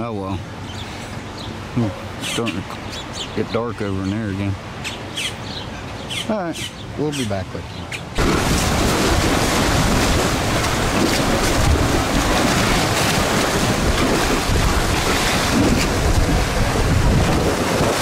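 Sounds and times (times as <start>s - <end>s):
wind buffeting microphone: 8.2s - 18.0s.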